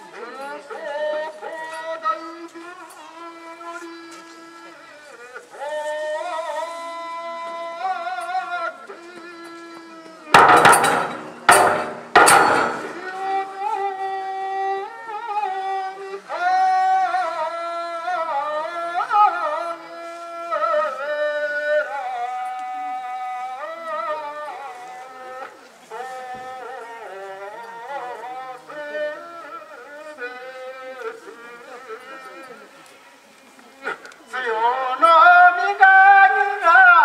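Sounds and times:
wavering chanted singing: 0.0 - 37.0
loud percussion strikes: 10.4 - 13.2.

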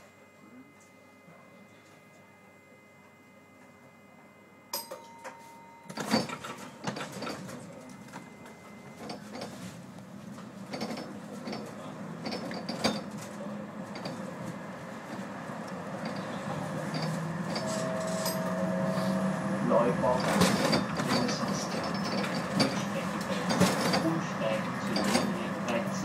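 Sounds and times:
tram clanking: 4.8 - 26.0
tram rattling and rolling: 5.9 - 26.0
short steady tone: 17.4 - 19.4.

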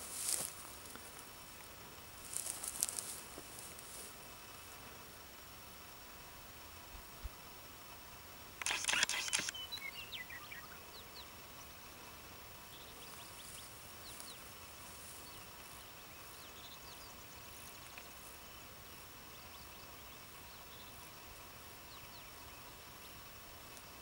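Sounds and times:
low steady hiss: 0.0 - 24.0.

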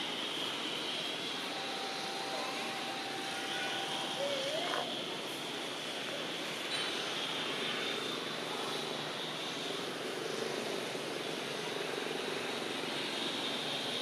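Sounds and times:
high hiss: 0.0 - 6.7
engine drone: 0.0 - 14.0.

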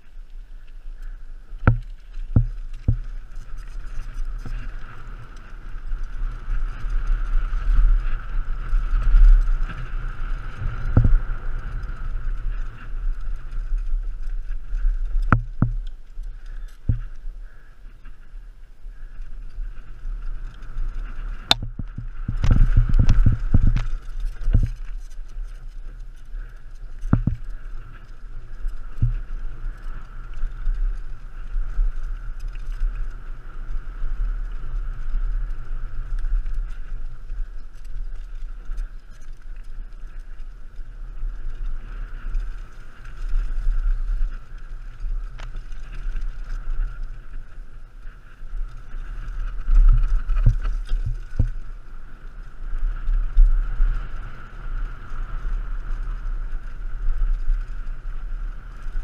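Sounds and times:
bike tyres and frame rattling: 0.0 - 59.0
wind rush on microphone: 0.0 - 59.0
bike hitting bumps: 1.6 - 3.2.

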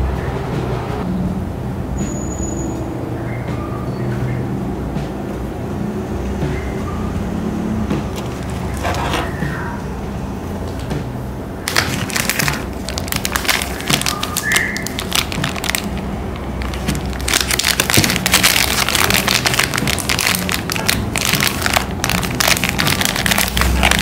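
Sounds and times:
plastic wrappers crinkling: 8.2 - 9.3, 11.6 - 24.0.

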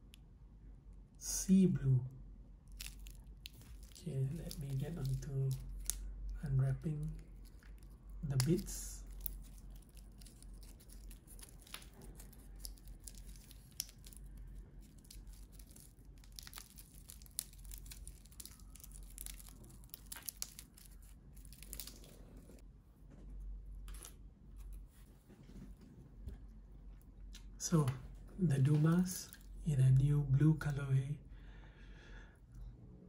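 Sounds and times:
plastic film peeling and crinkling: 2.6 - 22.6.

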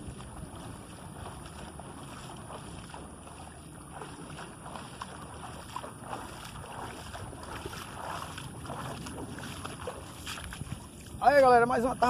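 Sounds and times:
water sloshing around legs: 0.0 - 11.5
wind on microphone: 0.0 - 12.0
dripping net splashes: 1.2 - 10.7.

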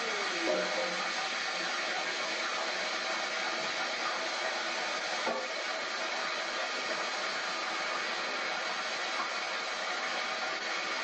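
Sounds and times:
water jet spraying on metal wheel: 0.0 - 11.0.

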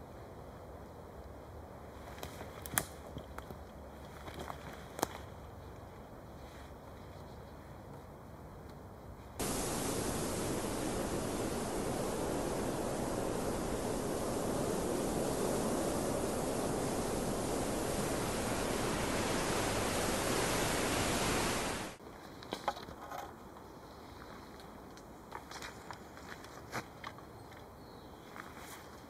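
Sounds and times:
steady rushing noise: 9.4 - 22.0.

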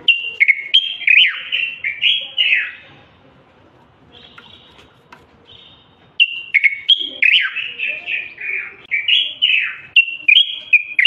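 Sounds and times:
bird singing whistled notes: 0.0 - 2.8, 5.5 - 11.0.

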